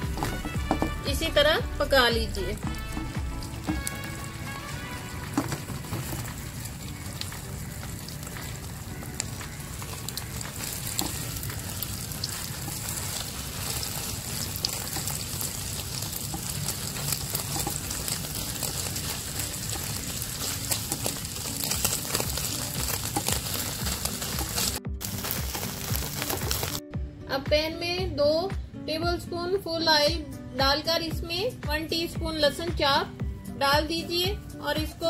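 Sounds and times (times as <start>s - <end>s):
egg sizzling in hot oil: 0.0s - 26.8s
spatula stirring in pan: 2.7s - 26.8s.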